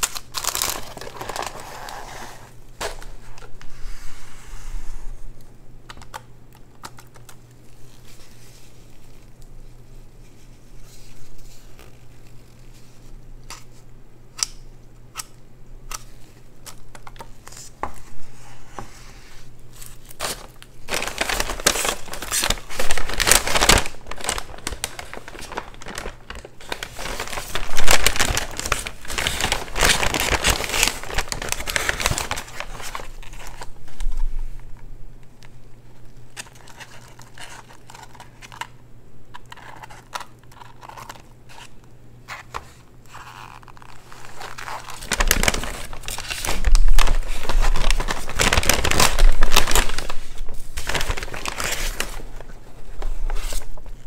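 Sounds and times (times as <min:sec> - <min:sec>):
paper wrappers crinkling: 0:00.0 - 0:03.7, 0:06.0 - 0:13.8, 0:19.3 - 0:34.8, 0:35.4 - 0:54.0
low steady hum: 0:00.0 - 0:54.0.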